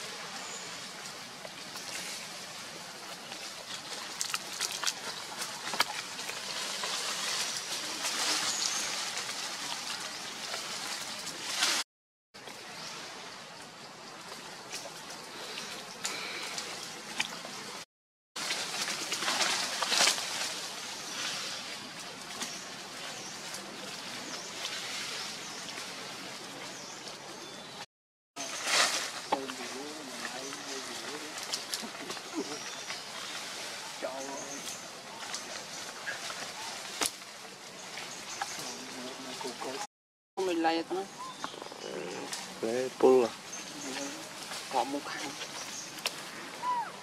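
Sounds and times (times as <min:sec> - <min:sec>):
monkeys rustling through dry leaves: 0:00.0 - 0:11.8, 0:18.4 - 0:27.5, 0:28.4 - 0:39.9, 0:40.6 - 0:47.0
steady forest hiss: 0:00.0 - 0:11.8, 0:12.4 - 0:17.8, 0:18.4 - 0:27.8, 0:28.4 - 0:47.0
twigs crackling: 0:03.0 - 0:11.8, 0:18.4 - 0:27.2, 0:28.4 - 0:39.8, 0:41.2 - 0:47.0.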